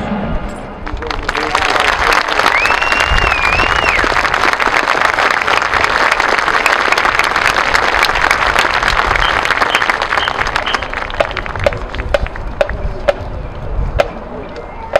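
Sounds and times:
stadium crowd applauding: 0.8s - 12.5s.

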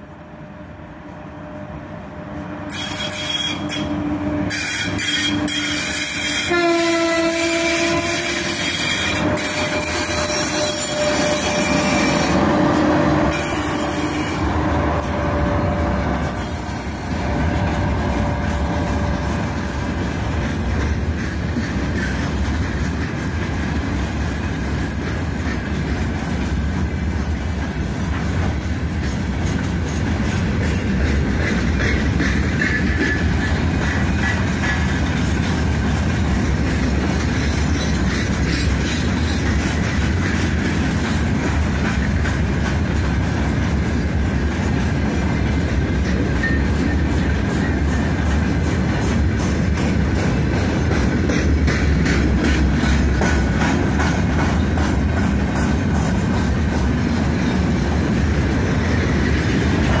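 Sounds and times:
train wheels rumbling and clattering: 0.0s - 60.0s
locomotive horn blasts: 2.7s - 20.0s.

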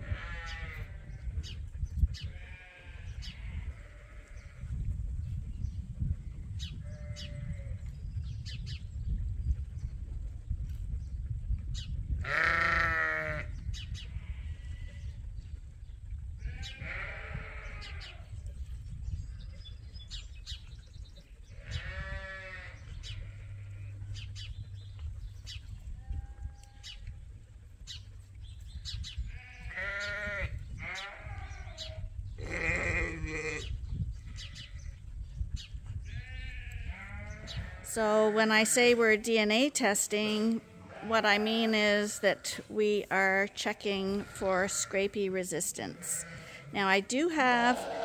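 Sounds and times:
sheep bleating: 0.0s - 1.1s, 2.4s - 4.4s, 12.3s - 13.5s, 21.6s - 23.7s, 29.4s - 31.6s, 32.4s - 33.7s.

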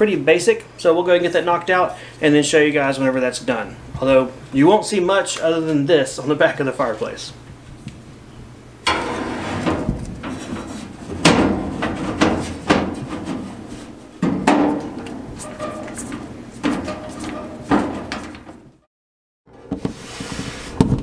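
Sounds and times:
metal knocks and clanks: 8.8s - 18.8s.

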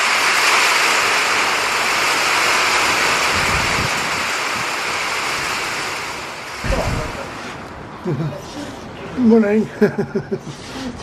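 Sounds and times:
heavy rain on a canopy: 0.0s - 7.7s.

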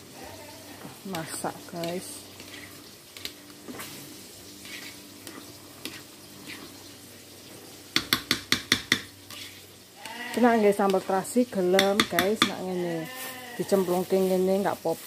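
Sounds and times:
paddle scraping rice in metal pot: 1.1s - 4.0s, 4.6s - 6.8s, 9.3s - 11.2s, 12.0s - 14.4s.

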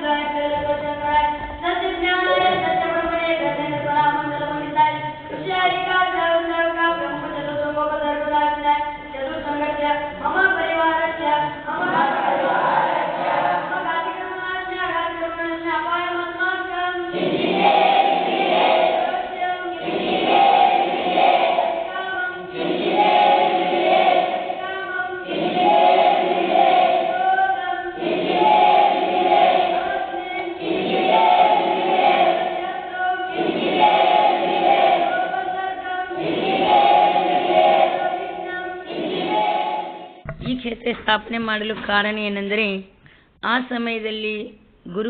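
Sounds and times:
crowd chanting in unison: 11.7s - 14.0s, 17.1s - 40.2s.

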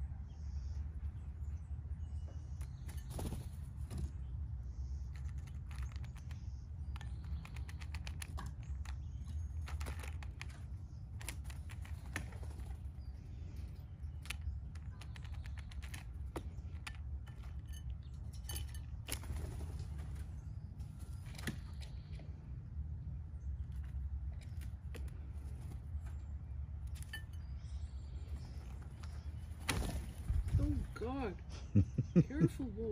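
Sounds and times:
steady low hum: 0.0s - 32.9s
bird pecking peanut shells: 5.0s - 20.4s.

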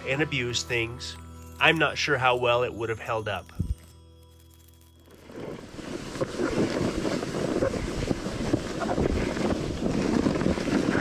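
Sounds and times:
sled scraping over snow: 5.2s - 11.0s
wind buffeting microphone: 5.3s - 11.0s.

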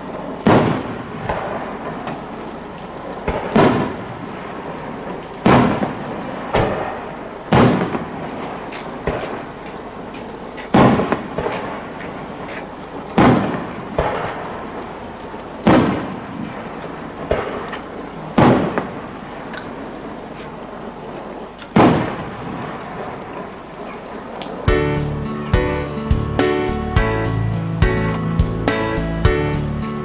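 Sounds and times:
firework booms: 0.0s - 9.8s, 10.7s - 19.8s, 21.7s - 23.5s
firework crackling: 0.0s - 30.0s
steady rain: 0.0s - 30.0s.

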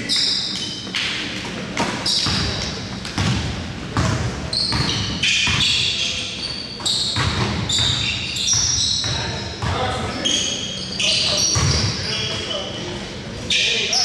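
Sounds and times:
sneaker squeaks: 0.0s - 14.0s
basketball bouncing on gym floor: 1.7s - 5.9s, 6.8s - 10.1s, 11.5s - 11.9s.

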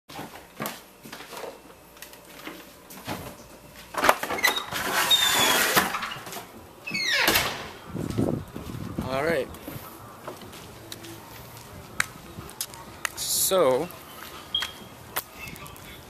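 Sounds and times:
brief squeaks: 4.4s - 5.9s
creaking hinge squeal: 4.4s - 6.0s, 6.9s - 7.4s.

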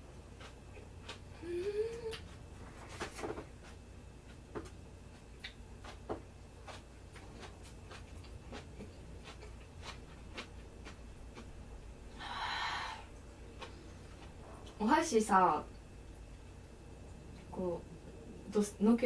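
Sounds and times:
chewing: 0.3s - 2.5s, 3.6s - 11.6s, 13.2s - 14.8s.

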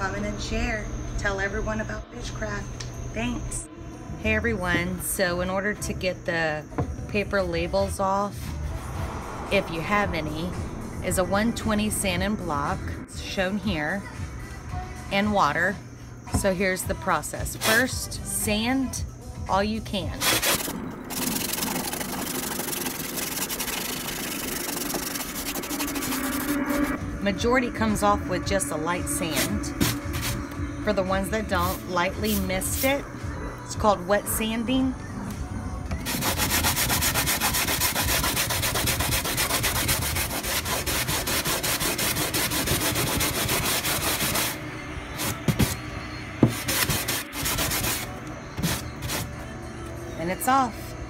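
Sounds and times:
sanding block scrubbing styrofoam: 36.0s - 44.6s, 46.5s - 49.3s.

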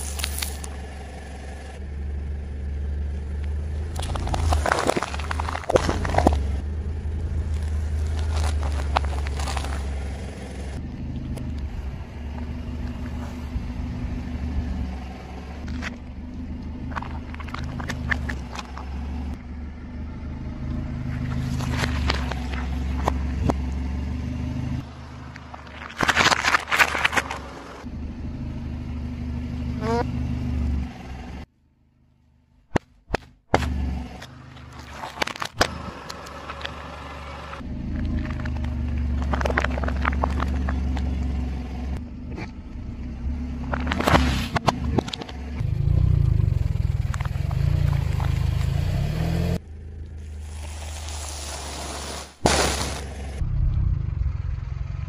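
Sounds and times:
car engine idling: 0.0s - 51.3s, 52.4s - 55.0s
tyre crushing lemons: 3.9s - 6.6s, 7.4s - 10.1s, 25.2s - 27.6s.

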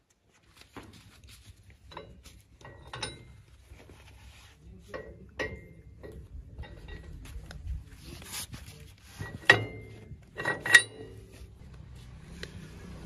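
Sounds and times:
metal clinks and knocks: 1.7s - 4.0s, 4.8s - 7.6s, 9.2s - 11.6s
sharp ringing metal clanks: 1.9s - 3.5s, 4.9s - 7.1s, 9.3s - 11.4s.

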